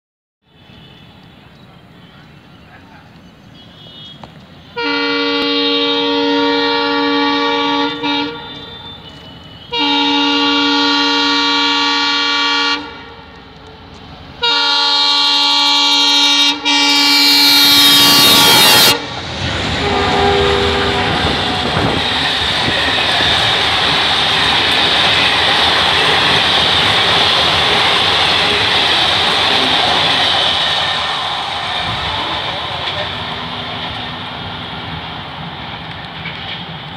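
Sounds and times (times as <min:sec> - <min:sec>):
train passing on rails: 0:00.5 - 0:36.9
locomotive horn blasts: 0:03.6 - 0:13.3, 0:14.4 - 0:19.2, 0:19.8 - 0:31.2.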